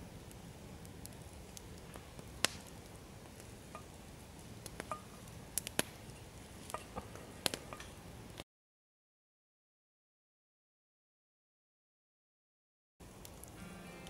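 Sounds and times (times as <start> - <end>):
campfire crackling: 0.0 - 8.4, 13.0 - 14.0.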